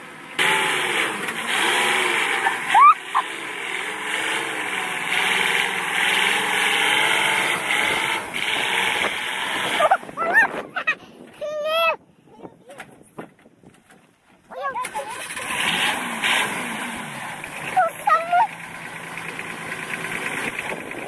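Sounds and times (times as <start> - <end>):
truck engine running under load: 0.0 - 10.2, 15.2 - 21.0.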